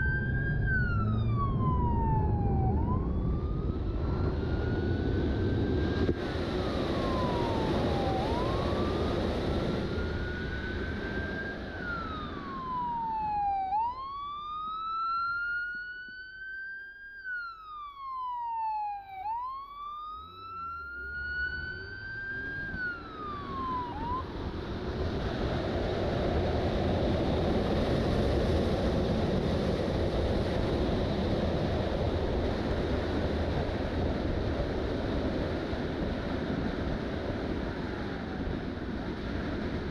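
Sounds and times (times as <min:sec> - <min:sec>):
wind rush on microphone: 0:00.0 - 0:13.8, 0:21.3 - 0:39.9
police siren wailing: 0:00.0 - 0:26.1
road noise: 0:00.0 - 0:39.9.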